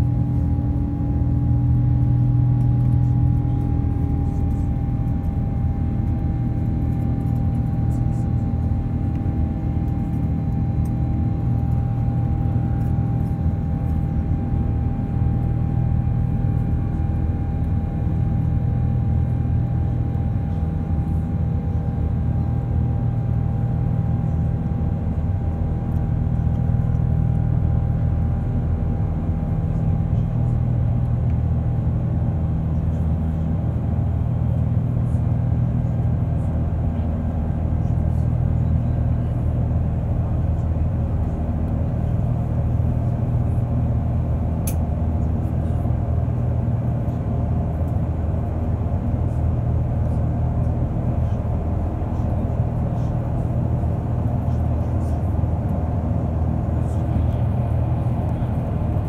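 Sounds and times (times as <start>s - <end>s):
jet engines low rumble: 0.0s - 59.0s.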